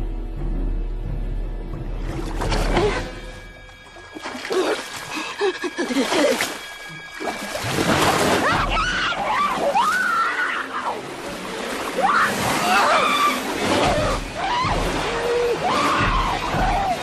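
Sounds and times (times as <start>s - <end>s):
water splashing and sloshing: 1.0s - 17.0s
woman screaming: 12.0s - 17.0s.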